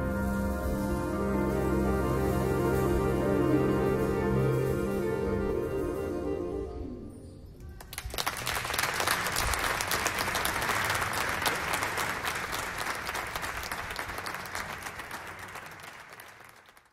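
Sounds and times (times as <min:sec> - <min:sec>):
audience applauding: 0:07.8 - 0:16.9.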